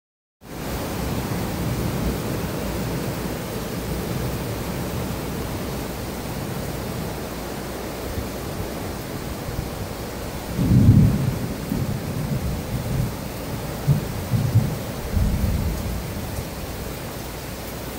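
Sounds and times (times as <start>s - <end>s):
heavy rain: 0.4s - 17.9s
thunder rumbling: 9.4s - 16.9s.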